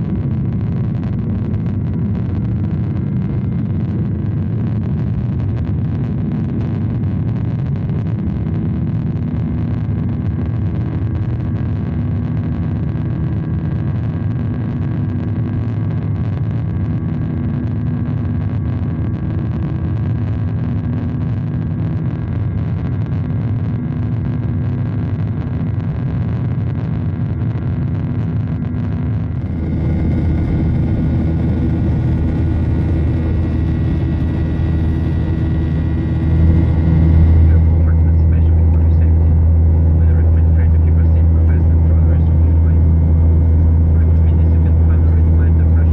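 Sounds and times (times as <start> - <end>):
jet cabin engine roar: 0.0 - 45.9
airflow: 29.3 - 45.4.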